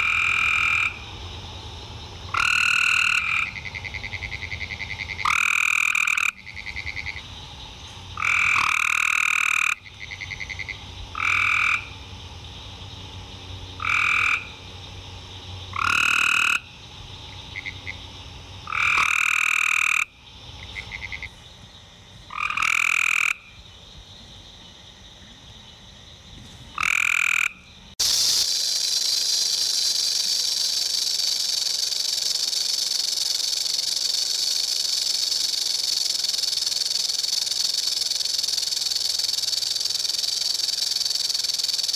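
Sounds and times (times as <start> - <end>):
frogs trilling: 0.0 - 26.0, 26.7 - 41.9
rattlesnake rattle buzz: 26.4 - 41.9.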